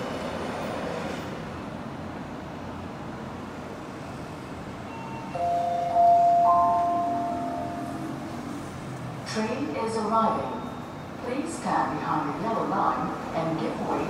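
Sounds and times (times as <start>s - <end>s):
bell-like arrival chime: 5.3s - 8.2s.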